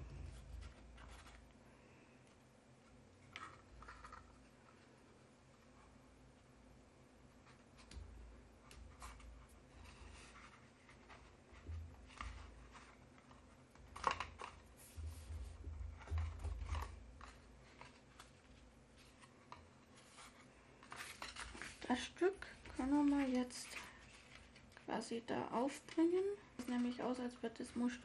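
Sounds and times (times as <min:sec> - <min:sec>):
paper rustling: 0:00.0 - 0:01.6, 0:08.6 - 0:24.9
palms thumping on paper: 0:13.9 - 0:17.4.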